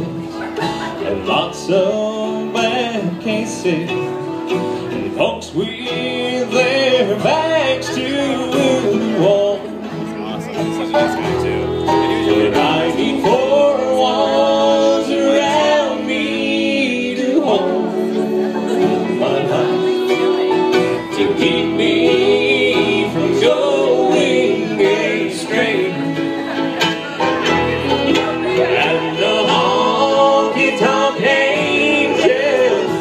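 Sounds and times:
acoustic guitar: 0:00.0 - 0:33.0
banjo: 0:00.0 - 0:33.0
fiddle: 0:00.0 - 0:33.0
mandolin: 0:00.0 - 0:33.0
upright bass: 0:00.0 - 0:33.0
voices singing together: 0:05.1 - 0:09.8, 0:11.9 - 0:33.0.

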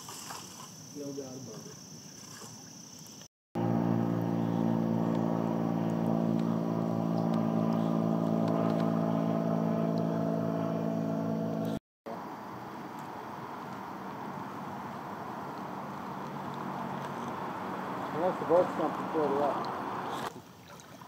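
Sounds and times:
engine running steadily: 0:03.6 - 0:20.3.

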